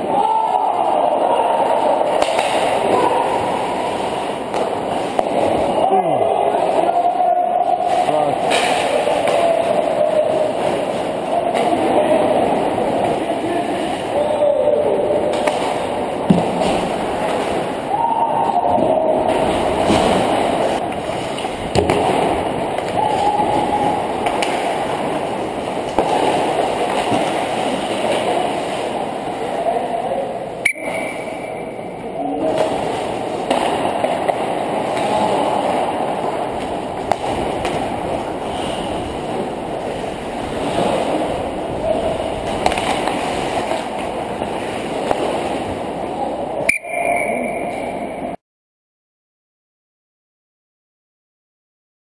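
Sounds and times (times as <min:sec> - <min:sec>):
muffled skating rush: 0:00.0 - 0:30.5, 0:32.0 - 0:46.7
stick and puck clacks: 0:37.0 - 0:37.9.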